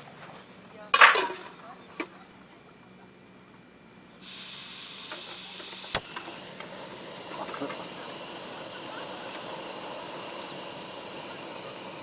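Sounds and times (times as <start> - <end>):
gas stove hissing: 4.1 - 12.0
piezo igniter click: 5.0 - 6.8.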